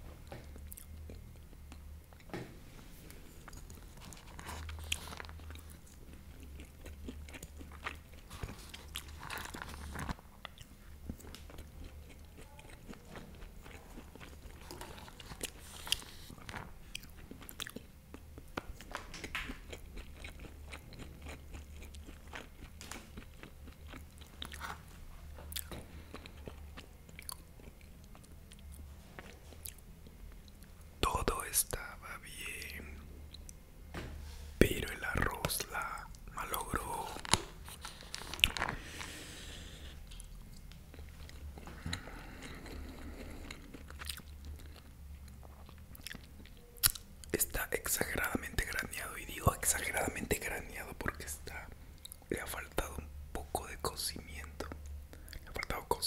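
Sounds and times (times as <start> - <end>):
chewing rice: 3.4 - 24.9, 25.5 - 29.8, 39.7 - 47.3.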